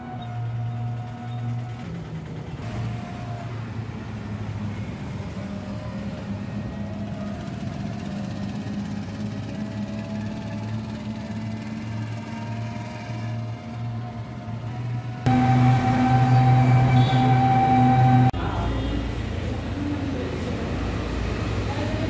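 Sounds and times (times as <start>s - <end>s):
vehicle road noise: 0.0s - 22.0s
background music with long notes: 10.4s - 18.3s.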